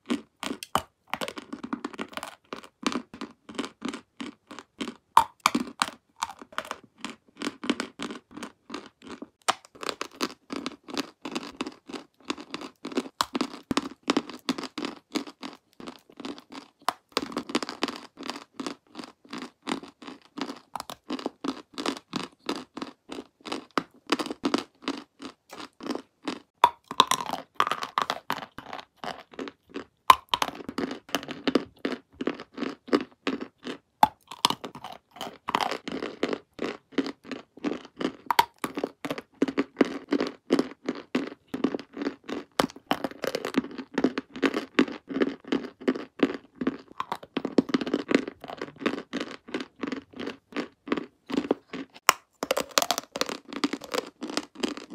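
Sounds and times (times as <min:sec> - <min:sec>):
chewing dry clay crunching: 0:00.0 - 0:54.9
sharp cracks of biting: 0:00.4 - 0:04.0, 0:04.8 - 0:07.8, 0:09.4 - 0:10.3, 0:26.6 - 0:29.3, 0:38.0 - 0:39.6, 0:51.3 - 0:54.9.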